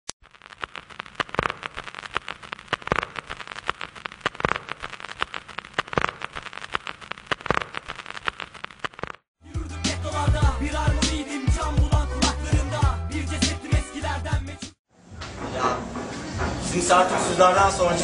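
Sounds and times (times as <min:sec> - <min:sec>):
crackling and popping: 0:00.1 - 0:09.3.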